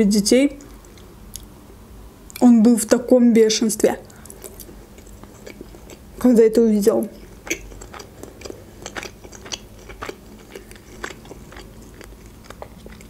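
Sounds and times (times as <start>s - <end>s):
person chewing food: 4.1s - 6.3s, 7.0s - 13.0s.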